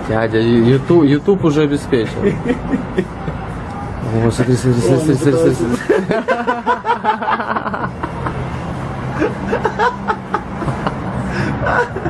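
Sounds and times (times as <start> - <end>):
people snickering and chuckling: 2.1 - 3.5, 5.2 - 12.0.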